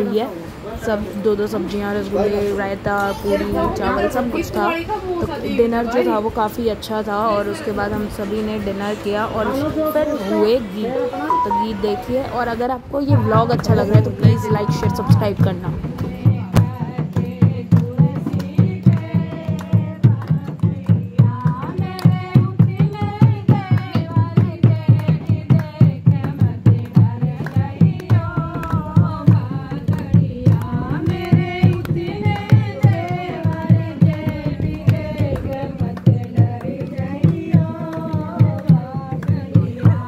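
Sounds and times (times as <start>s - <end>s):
women singing folk song: 0.0s - 40.0s
quick hand drum beat: 13.1s - 40.0s.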